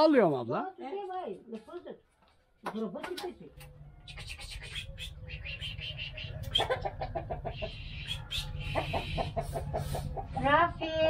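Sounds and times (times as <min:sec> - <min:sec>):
chickens clucking: 0:03.6 - 0:11.0.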